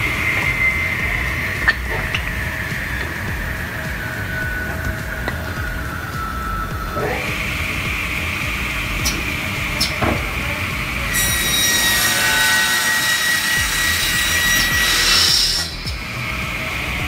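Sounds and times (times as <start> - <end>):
saw blade whining: 0.0 - 17.0
saw screeching through wood: 11.1 - 16.0.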